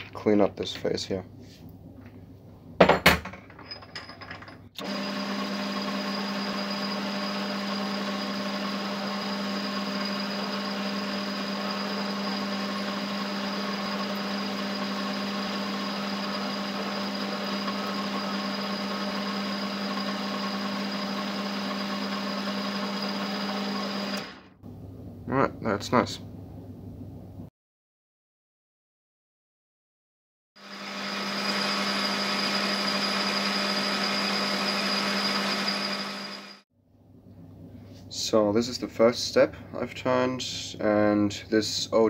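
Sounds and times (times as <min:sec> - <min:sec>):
metal lathe humming: 0:04.8 - 0:24.6, 0:30.6 - 0:36.6.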